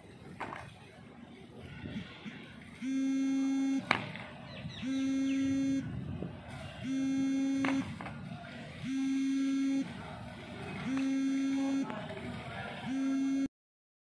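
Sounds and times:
low electronic buzzer: 0:02.8 - 0:03.9, 0:04.8 - 0:06.0, 0:06.8 - 0:08.0, 0:08.8 - 0:10.0, 0:10.8 - 0:11.9, 0:12.9 - 0:13.5.

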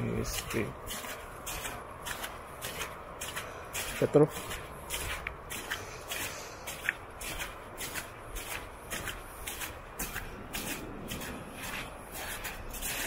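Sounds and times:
footsteps through wet snow: 0:00.0 - 0:13.0.

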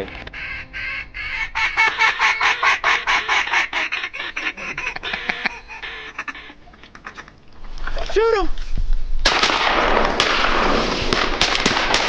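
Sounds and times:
rapid duck quacks: 0:00.0 - 0:07.3.

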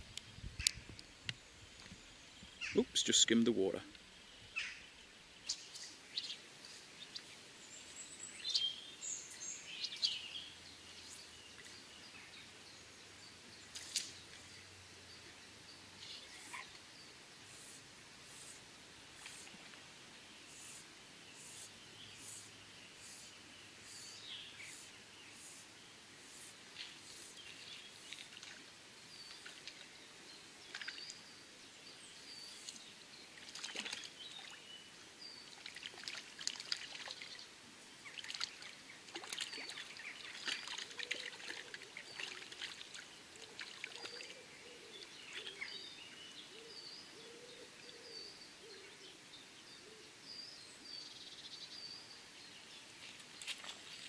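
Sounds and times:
birds singing: 0:00.2 - 0:18.6, 0:20.2 - 0:54.0
river trickling: 0:00.2 - 0:46.2
sharp splashy noises: 0:33.4 - 0:34.6, 0:35.5 - 0:37.4, 0:38.1 - 0:44.3.

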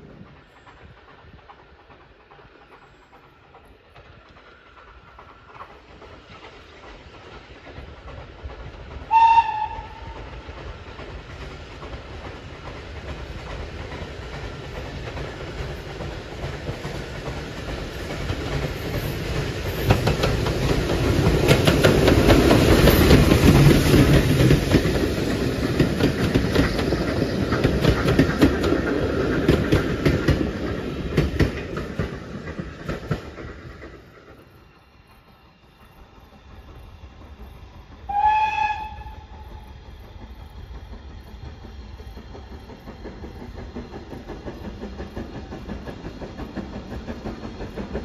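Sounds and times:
train passing: 0:00.0 - 0:48.0
wheels clicking over rail joints: 0:00.0 - 0:48.0
steam locomotive whistle: 0:09.1 - 0:10.3, 0:38.1 - 0:39.7.

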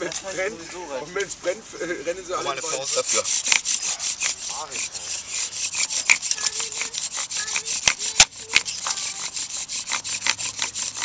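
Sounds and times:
wood-on-wood rubbing strokes: 0:00.0 - 0:11.0
wooden spindle squeaks: 0:02.4 - 0:11.0.

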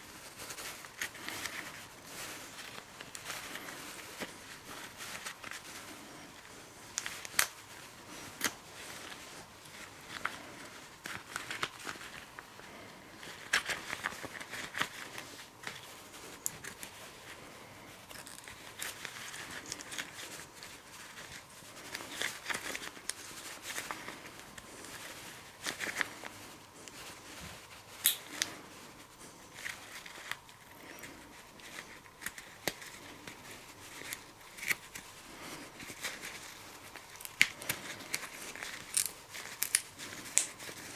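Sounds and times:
rubber gloves rustling: 0:00.0 - 0:40.9.

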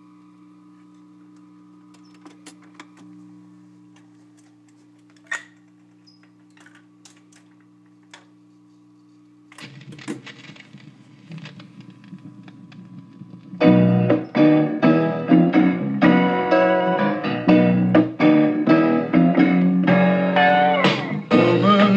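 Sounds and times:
record changer hum: 0:00.0 - 0:21.9
record surface crackle: 0:00.1 - 0:21.9
music from a record: 0:09.6 - 0:21.9.

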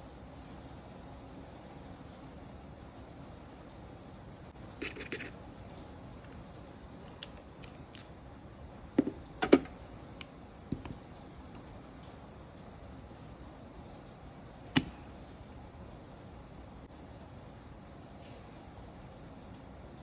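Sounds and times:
tools tapping on tabletop: 0:09.0 - 0:09.7.

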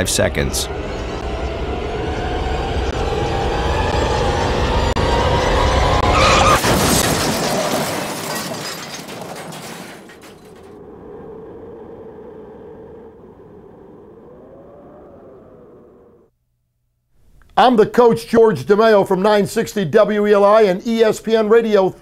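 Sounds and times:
tyre squeal: 0:05.4 - 0:06.7
car crash impact: 0:05.9 - 0:10.8
debris crashing: 0:06.2 - 0:10.8
glass shattering: 0:06.3 - 0:10.7.

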